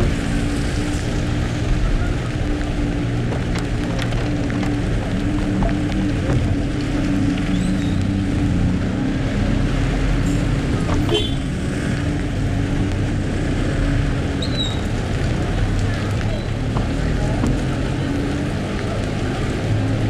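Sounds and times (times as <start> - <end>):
car engine hum and road noise: 0.0 - 20.0
rain and wet tyres hissing: 0.0 - 20.0.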